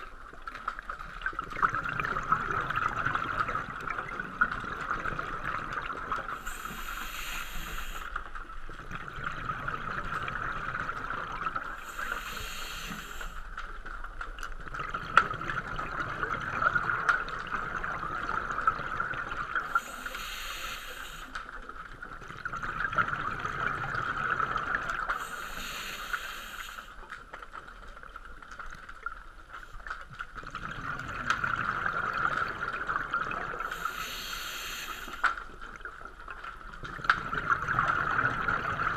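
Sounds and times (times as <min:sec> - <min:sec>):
diver breathing through regulator: 0:06.4 - 0:08.2, 0:11.8 - 0:13.4, 0:19.7 - 0:21.4, 0:25.1 - 0:27.0, 0:33.7 - 0:35.4
steady high hum: 0:06.4 - 0:08.3.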